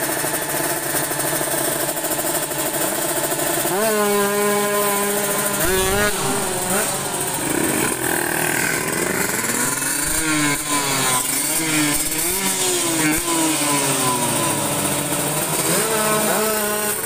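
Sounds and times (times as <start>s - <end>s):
motorbike engines revving: 0.0s - 17.0s.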